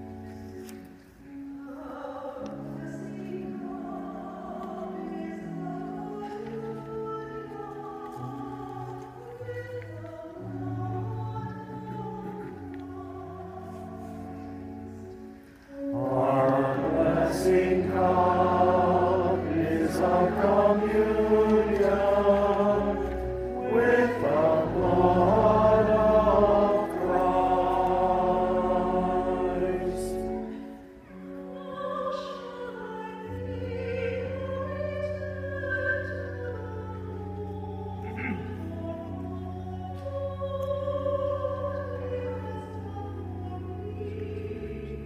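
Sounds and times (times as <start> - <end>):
choir singing held chords: 15.7 - 31.0.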